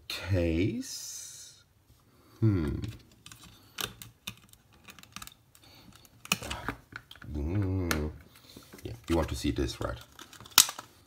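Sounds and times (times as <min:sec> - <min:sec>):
short vocal sound: 0:02.4 - 0:03.0
plastic clicks and snaps: 0:03.1 - 0:08.2, 0:10.0 - 0:10.9.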